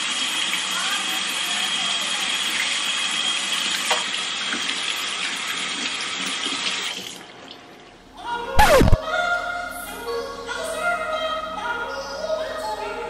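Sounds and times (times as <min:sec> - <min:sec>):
tap water running into metal sink: 0:00.0 - 0:07.6.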